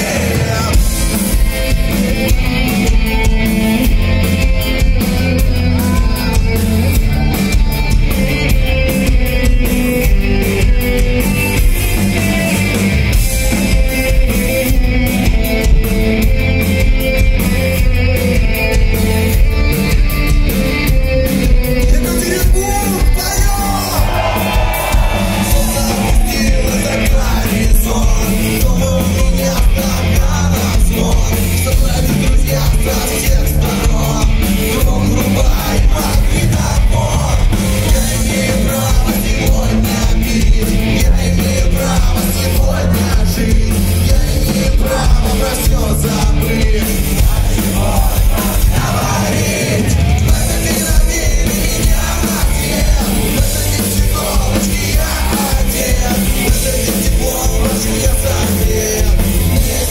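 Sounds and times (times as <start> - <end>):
live rock band playing: 0.0 - 59.9
man singing into microphone: 25.4 - 59.9.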